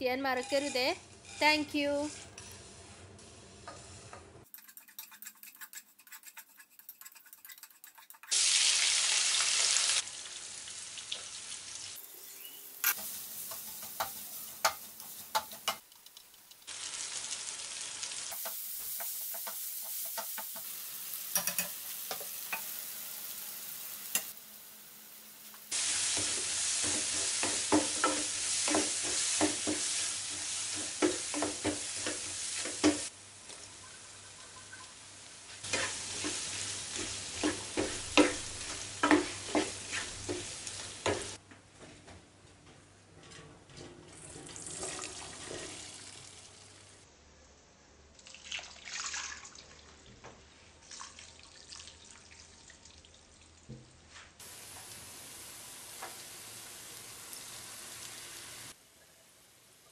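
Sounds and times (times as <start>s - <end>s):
vegetables sizzling in oil: 0.0s - 4.4s, 8.2s - 41.4s, 54.4s - 58.8s
spatula scraping a pan: 0.4s - 8.3s, 35.6s - 41.4s.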